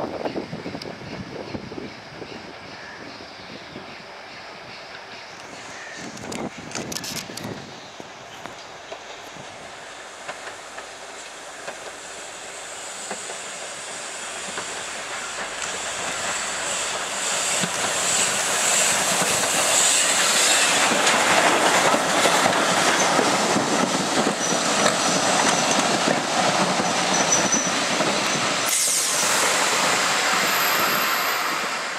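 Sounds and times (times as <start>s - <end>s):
train wheels clattering over rail joints: 10.2s - 12.0s, 14.3s - 31.6s
high wheel squeal: 26.8s - 31.9s.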